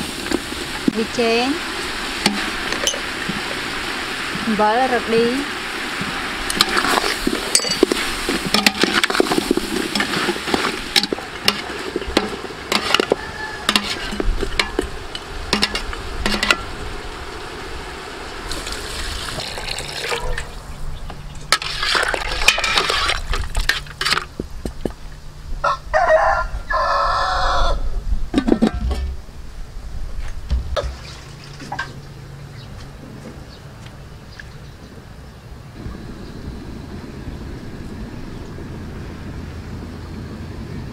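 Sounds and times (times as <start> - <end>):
metal ladle scraping a pot: 6.5 - 16.8, 21.5 - 24.3
rooster crowing: 12.8 - 14.2, 25.6 - 27.9.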